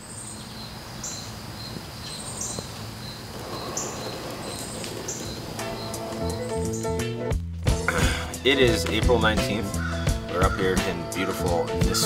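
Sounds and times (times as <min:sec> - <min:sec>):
insects chirping: 0:00.0 - 0:07.3
short high bird calls: 0:01.0 - 0:07.0.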